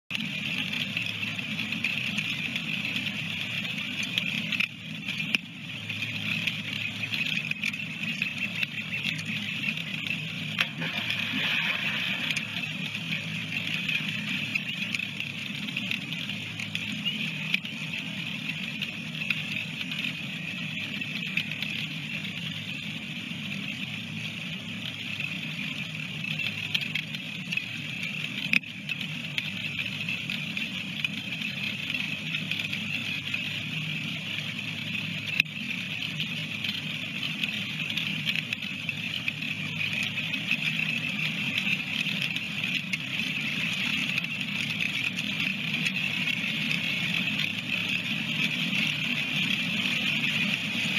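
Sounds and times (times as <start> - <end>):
faint clicks: 0.1 - 50.9
river rushing: 10.6 - 15.0.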